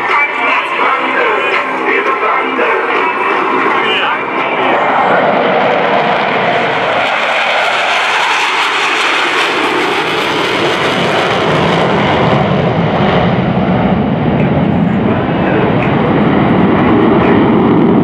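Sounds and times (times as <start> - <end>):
jets flying over: 0.0 - 18.0.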